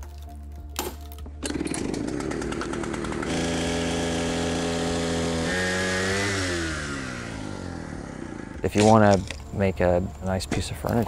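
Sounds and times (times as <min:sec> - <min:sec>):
chainsaw cutting wood: 0:01.3 - 0:09.4.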